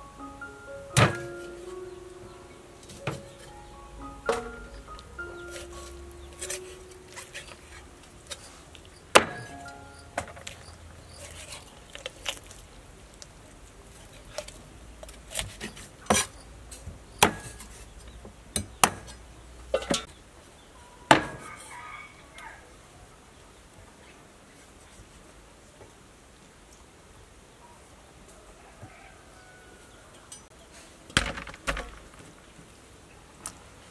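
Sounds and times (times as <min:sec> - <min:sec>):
cleaver chopping on wooden block: 0:09.1 - 0:09.6, 0:17.2 - 0:17.7, 0:18.6 - 0:19.1.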